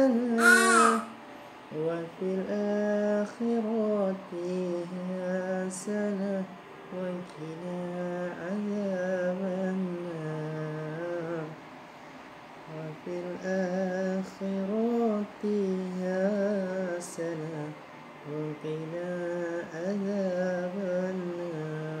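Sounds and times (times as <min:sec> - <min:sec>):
man humming a lullaby: 0:00.0 - 0:06.3.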